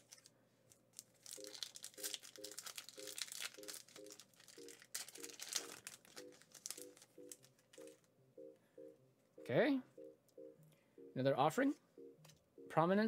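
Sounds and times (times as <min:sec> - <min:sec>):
foil wrapper crinkling: 0:00.0 - 0:00.3, 0:00.9 - 0:08.0
wrapper tearing: 0:00.0 - 0:00.3, 0:00.9 - 0:08.0.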